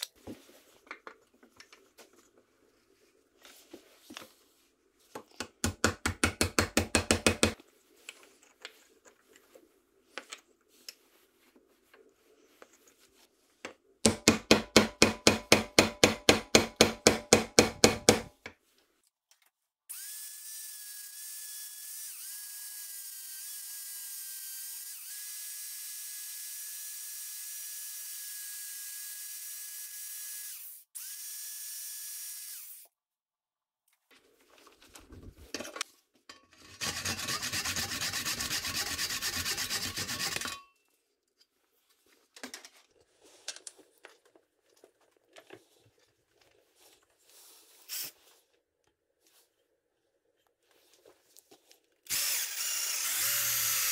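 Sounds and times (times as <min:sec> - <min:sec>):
loud scraping on wood: 0:36.6 - 0:40.6.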